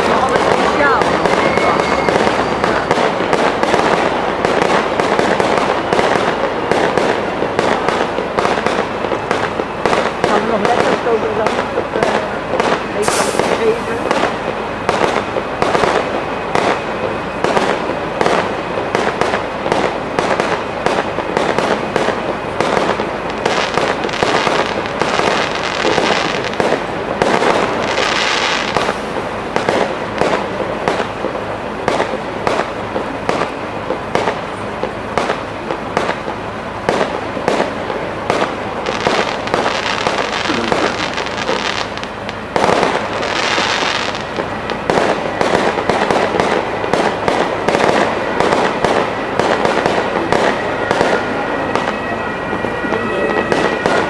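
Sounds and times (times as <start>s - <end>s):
hissing crackle: 0.0s - 51.2s
firework bangs and crackling: 0.0s - 54.0s.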